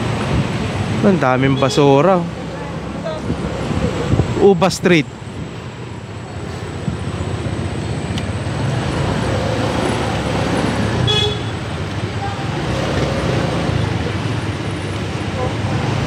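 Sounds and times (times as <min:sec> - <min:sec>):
vehicle horn toot: 0:11.0 - 0:11.6.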